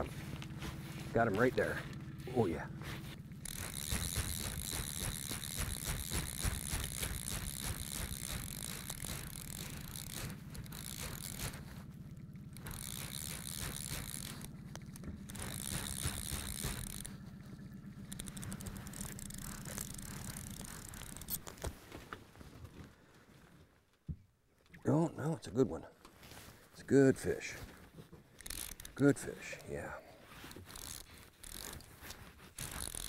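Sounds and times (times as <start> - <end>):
fishing reel drag ratcheting: 1.2 - 21.6, 28.4 - 29.7, 30.4 - 33.0.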